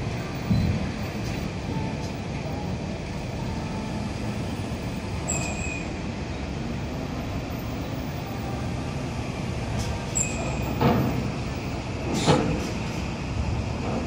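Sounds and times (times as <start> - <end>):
truck engine rumble: 0.0 - 14.0
short high squeal: 5.2 - 6.0, 10.1 - 10.7.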